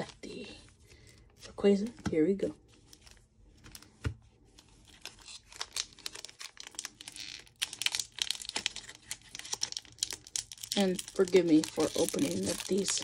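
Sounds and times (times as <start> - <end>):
foil wrapper tearing and crinkling: 4.6 - 13.0.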